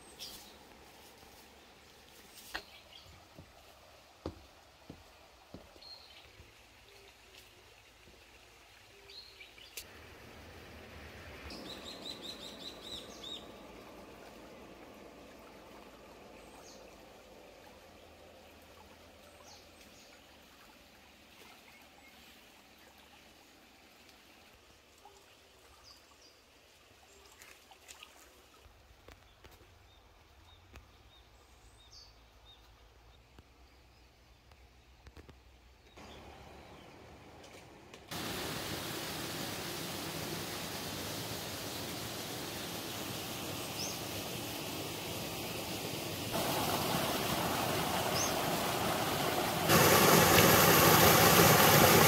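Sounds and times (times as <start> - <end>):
trickling water: 0.0 - 31.5, 38.1 - 52.0
small birds chirping: 11.5 - 13.9, 41.5 - 51.5.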